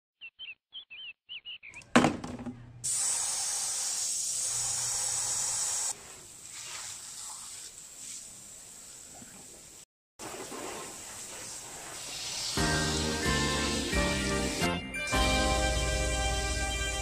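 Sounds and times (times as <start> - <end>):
hose spraying water into a basin: 2.8 - 15.8
water spraying on a windshield: 2.9 - 9.5, 10.2 - 14.6.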